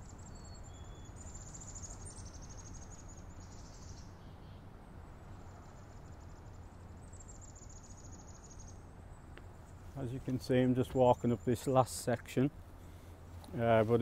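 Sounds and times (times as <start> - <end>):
insect trill: 5.4 - 8.8.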